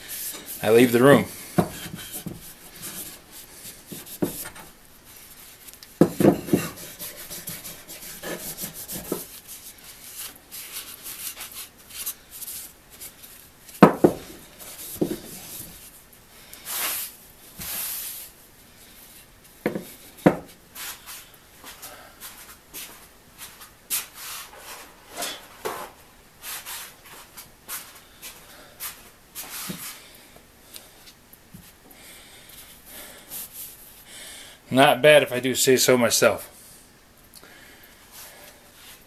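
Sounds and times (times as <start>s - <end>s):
handle knocking on workbench: 6.0s - 6.7s
cloth rubbing on wood: 6.5s - 13.2s.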